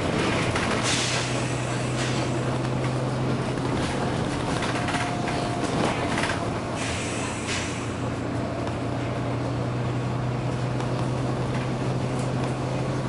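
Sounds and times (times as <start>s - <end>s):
bus diesel engine humming: 0.0s - 13.0s
road noise: 0.0s - 13.0s
air brake hisses: 0.8s - 2.4s, 6.7s - 8.0s.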